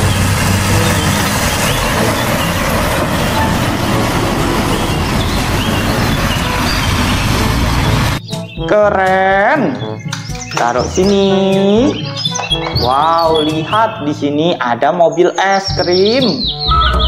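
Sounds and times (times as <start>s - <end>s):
diesel truck engine rumble: 0.0s - 8.2s.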